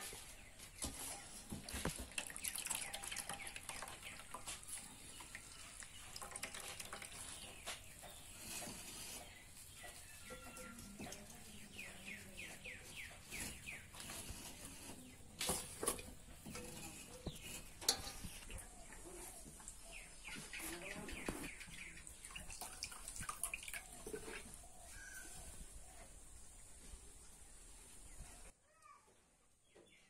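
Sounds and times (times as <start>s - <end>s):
water dripping: 1.6s - 8.0s, 21.6s - 24.5s
bird chirping: 16.6s - 22.6s.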